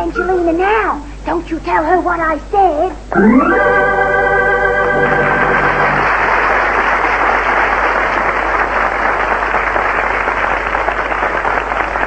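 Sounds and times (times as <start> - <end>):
held organ chord: 3.1 - 6.4
audience applauding: 4.9 - 12.0.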